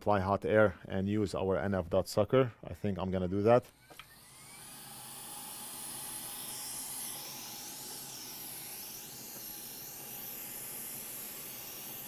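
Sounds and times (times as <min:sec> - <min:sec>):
hot air station hissing: 0:03.8 - 0:12.0.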